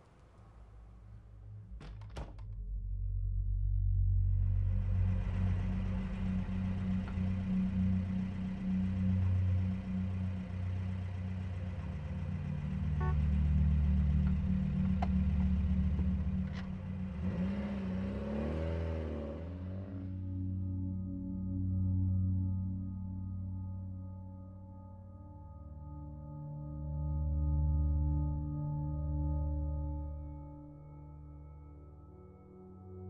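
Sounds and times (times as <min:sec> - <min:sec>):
car engine rumble and road noise: 0:00.0 - 0:20.5
ringing bowl-like music tones: 0:04.4 - 0:17.5.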